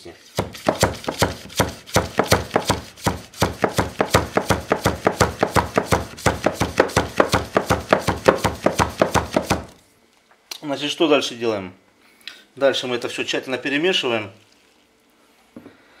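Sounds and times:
rapid sharp taps: 0:00.4 - 0:09.7.

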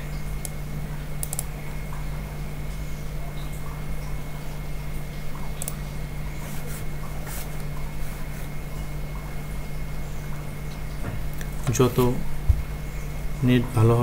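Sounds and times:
electrical hum and hiss: 0:00.0 - 0:14.0.

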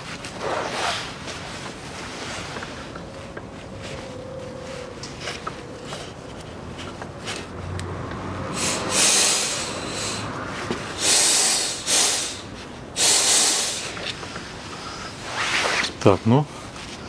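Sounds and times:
compressed air blow gun hissing: 0:08.5 - 0:10.3, 0:10.9 - 0:14.1.

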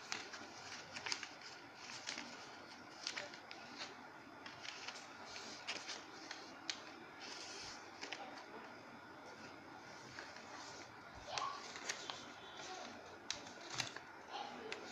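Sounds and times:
paper rustling and crackling: 0:00.0 - 0:08.6, 0:09.3 - 0:14.9.

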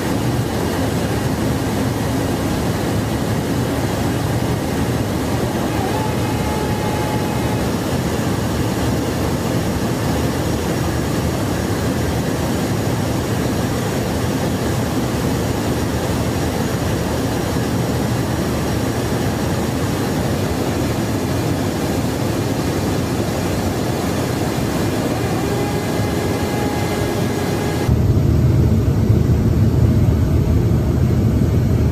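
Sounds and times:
aircraft airflow and engine roar: 0:00.0 - 0:31.9
deep rumble: 0:26.4 - 0:31.9.

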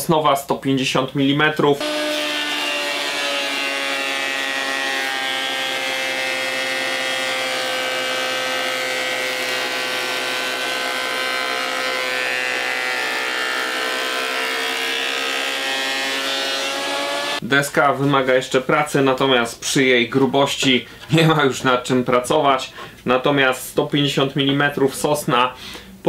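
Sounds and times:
planer motor whine: 0:01.8 - 0:17.4.

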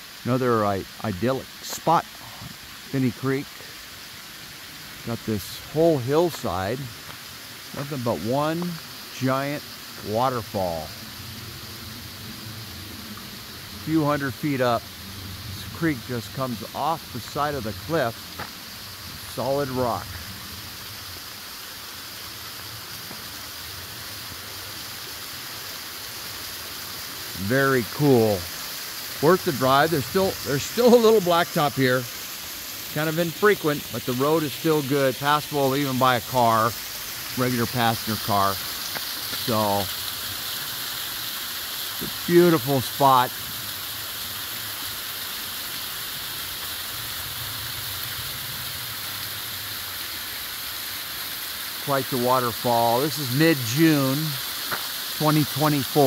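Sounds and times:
waterfall rushing hiss: 0:00.0 - 0:56.0.

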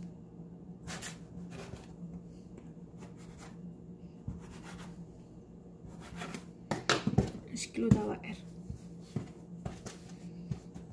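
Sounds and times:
steady low hum: 0:00.0 - 0:10.9
hands rubbing dough: 0:03.0 - 0:05.0, 0:07.9 - 0:10.9.

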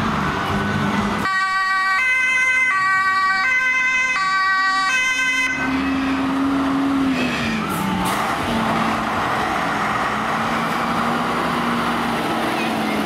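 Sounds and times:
truck engine running: 0:00.0 - 0:01.3, 0:05.4 - 0:13.0
fire truck two-tone siren: 0:01.2 - 0:08.0.

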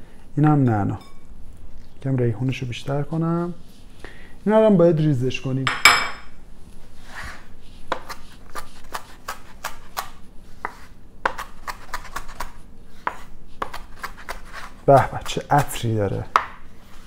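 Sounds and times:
knife chopping on wooden board: 0:07.9 - 0:16.6.

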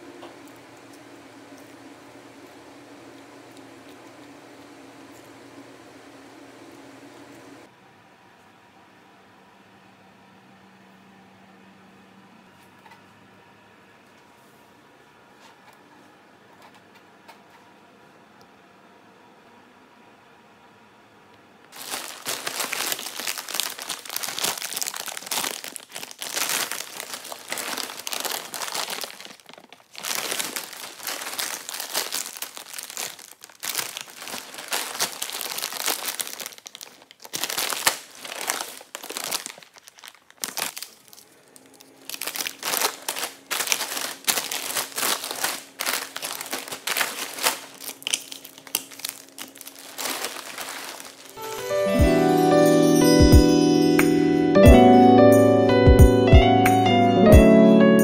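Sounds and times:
plastic bags rustling and crinkling: 0:21.7 - 0:51.9.

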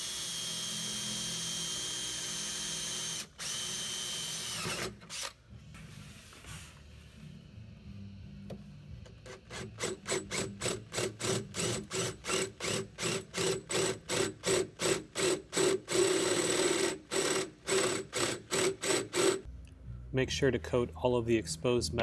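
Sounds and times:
cordless drill cutting sheet metal: 0:00.0 - 0:05.4, 0:09.3 - 0:19.4.

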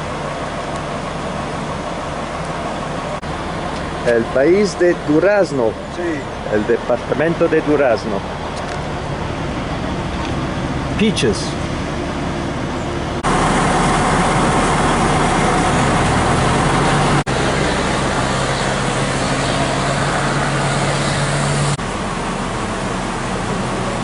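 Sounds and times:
engine and tyres rumbling: 0:00.0 - 0:24.0.

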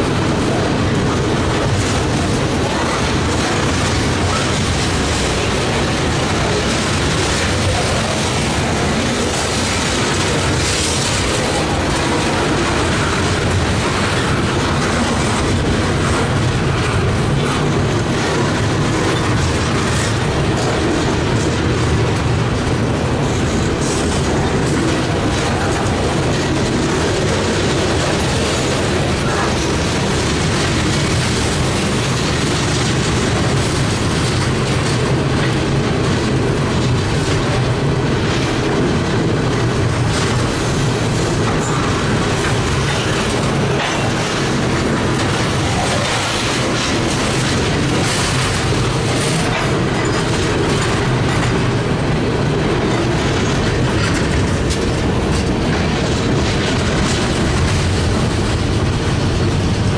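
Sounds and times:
freight train rumble: 0:00.0 - 0:59.9
wheels clicking over rails: 0:00.0 - 0:59.9.

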